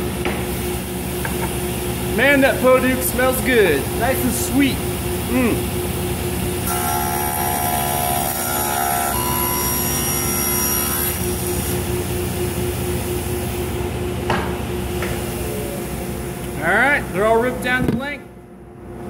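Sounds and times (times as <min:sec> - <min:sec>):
table saw ripping wood: 0:06.7 - 0:11.2.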